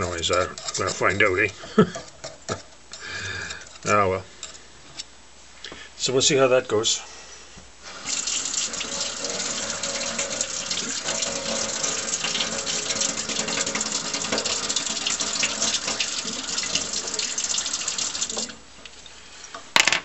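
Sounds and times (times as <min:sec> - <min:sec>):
tap water running into metal sink: 0:07.9 - 0:18.6.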